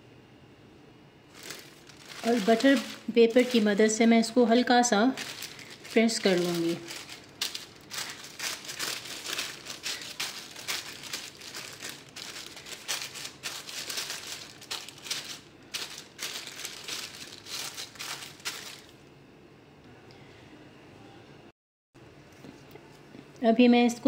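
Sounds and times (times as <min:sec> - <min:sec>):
paper crinkling: 0:01.3 - 0:19.0.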